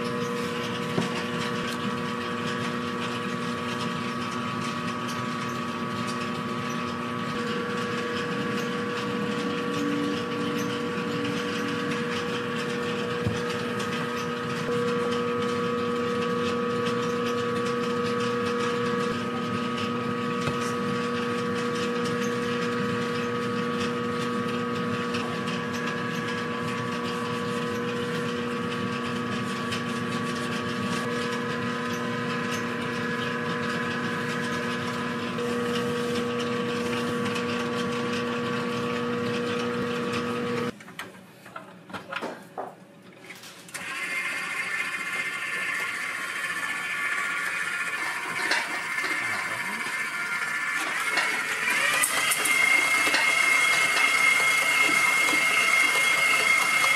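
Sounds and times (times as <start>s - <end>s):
kitchen machinery humming: 0.0s - 56.9s.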